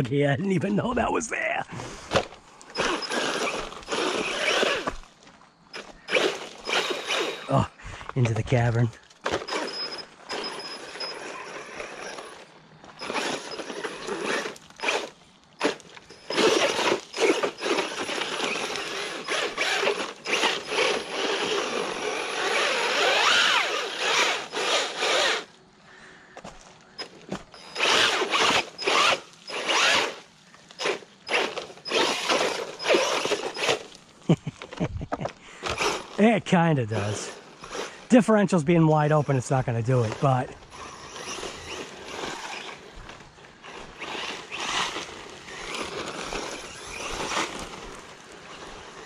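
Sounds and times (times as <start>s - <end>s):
rc car motor and gears whining: 1.8s - 49.0s.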